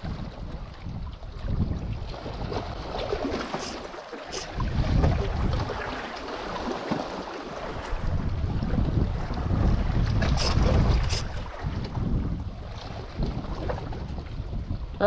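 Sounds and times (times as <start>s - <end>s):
wind buffeting microphone: 0.0s - 3.7s, 4.4s - 6.7s, 7.6s - 15.0s
choppy sea water on rocks: 0.0s - 15.0s.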